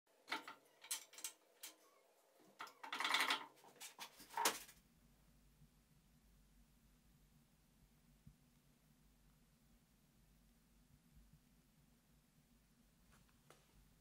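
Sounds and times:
sharp clicks and knocks: 0.2 - 1.8
faint low hum: 0.2 - 14.0.

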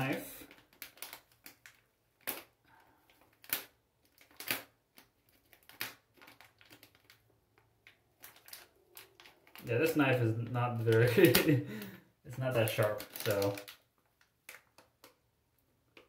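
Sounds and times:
knife scraping plastic packaging: 12.6 - 13.8.

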